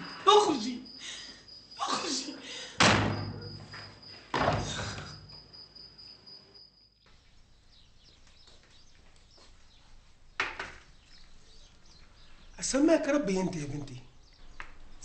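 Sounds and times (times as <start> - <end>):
door slamming: 2.8 - 5.2.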